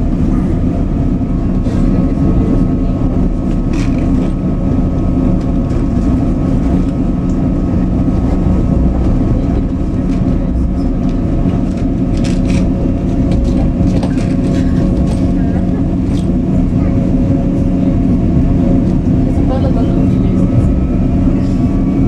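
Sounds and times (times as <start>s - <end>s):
steady train hum: 0.0s - 22.0s
wheels rumbling on track: 0.0s - 22.0s.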